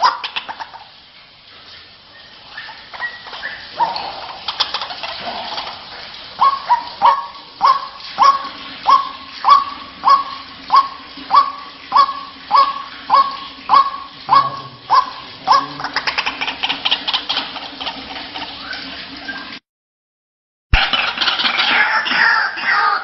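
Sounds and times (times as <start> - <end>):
waterhen honking calls: 0.0 - 0.8, 2.2 - 5.6, 6.2 - 19.6, 20.8 - 23.0.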